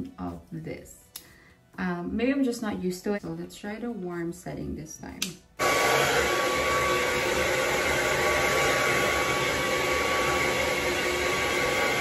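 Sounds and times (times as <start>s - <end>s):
hair dryer blowing: 5.6s - 12.0s.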